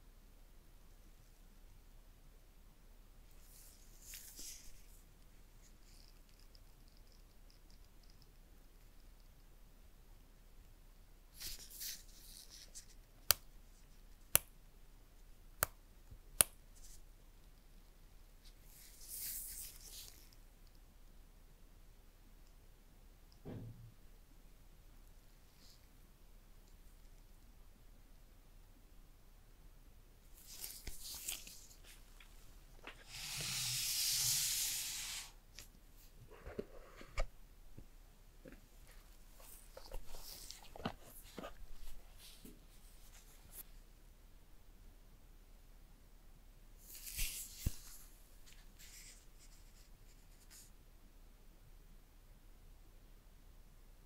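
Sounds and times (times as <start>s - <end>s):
smooth rustling hiss: 3.2s - 9.5s, 11.2s - 14.4s, 16.6s - 21.1s, 24.7s - 28.3s, 30.2s - 44.0s, 46.7s - 50.8s
handling rustle: 30.3s - 33.0s, 38.5s - 43.6s.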